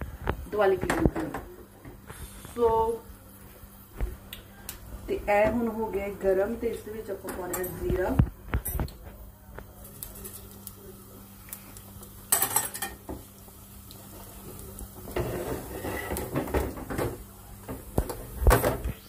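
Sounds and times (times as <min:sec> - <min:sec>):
seeds sizzling in hot oil: 0:09.7 - 0:19.0
metal cookware clanking: 0:12.3 - 0:13.2.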